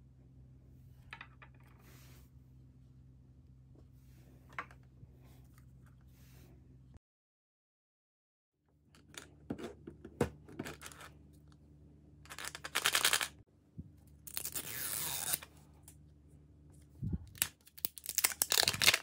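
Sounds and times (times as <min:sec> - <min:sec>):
plastic wrapping crinkling and tearing: 0:17.3 - 0:19.0.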